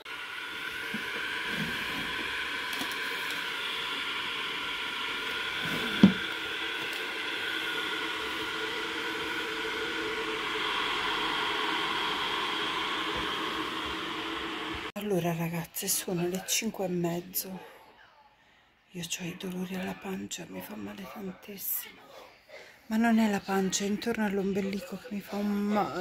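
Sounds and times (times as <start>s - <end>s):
electric kettle hissing: 0.0s - 16.2s.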